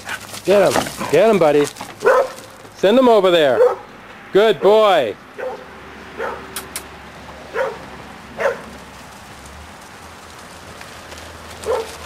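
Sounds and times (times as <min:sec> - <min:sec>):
sheep hooves on dirt: 0:00.0 - 0:04.2, 0:07.2 - 0:12.0.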